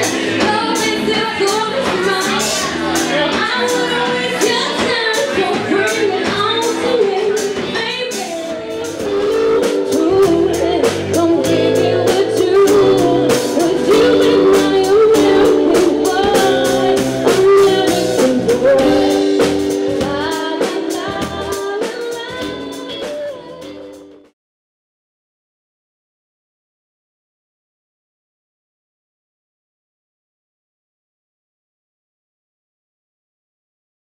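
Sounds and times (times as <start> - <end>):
woman singing: 0.0 - 24.2
bass guitar: 0.0 - 24.3
drum kit: 0.0 - 24.3
electric guitar: 0.0 - 24.3.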